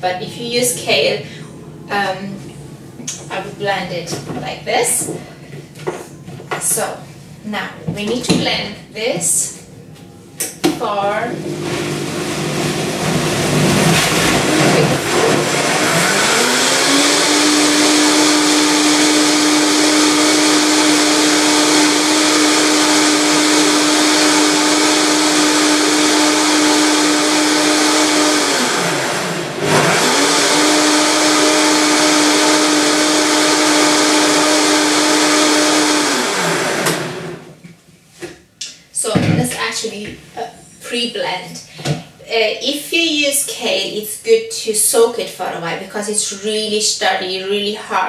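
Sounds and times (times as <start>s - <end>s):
blender motor running: 11.3s - 37.6s.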